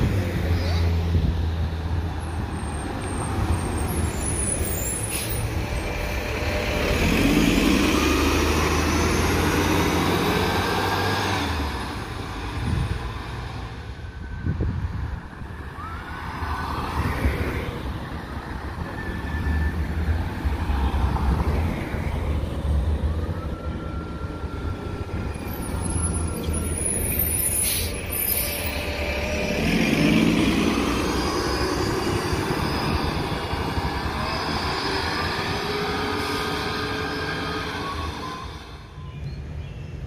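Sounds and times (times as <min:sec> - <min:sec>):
bus engine rumble: 0:00.0 - 0:40.0
air brake hiss: 0:04.9 - 0:05.5, 0:27.5 - 0:28.7.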